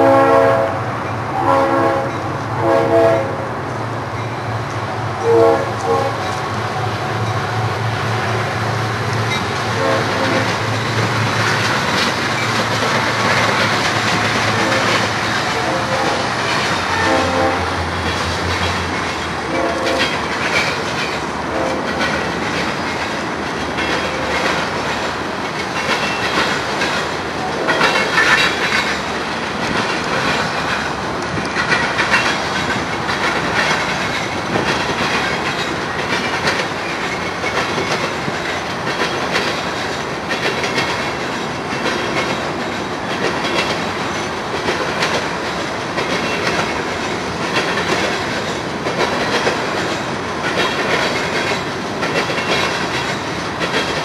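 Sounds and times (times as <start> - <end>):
train horn blasts: 0.0 - 3.6, 5.2 - 6.3, 9.7 - 10.6, 14.4 - 18.0, 19.4 - 20.2, 21.5 - 22.1
diesel locomotives droning: 0.0 - 54.0
freight cars rumbling: 0.0 - 54.0
wheels clicking over rail joints: 5.8 - 54.0.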